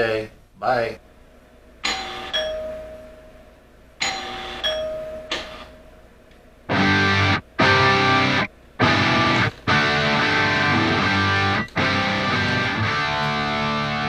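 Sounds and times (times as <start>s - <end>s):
two-tone doorbell chime: 1.8s - 3.3s, 4.0s - 5.9s
distorted electric guitar music: 6.7s - 14.0s.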